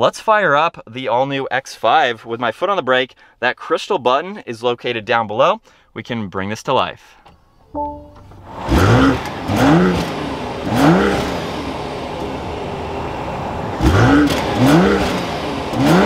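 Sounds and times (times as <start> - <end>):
car engine revving and idling: 8.3 - 16.0.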